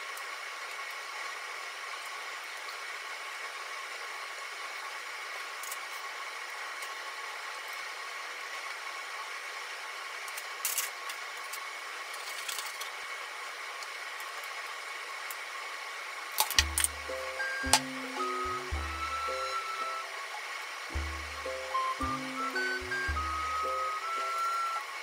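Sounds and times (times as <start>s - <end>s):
chopsticks clicking and tapping: 16.6s - 17.0s
background hiss: 16.6s - 25.0s
faint hum: 16.6s - 25.0s.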